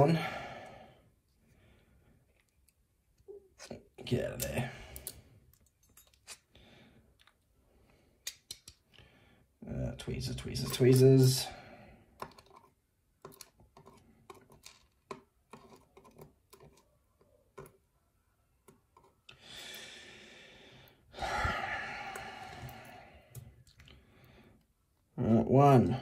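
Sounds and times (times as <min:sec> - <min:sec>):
soft breathy noises: 0:19.3 - 0:24.8.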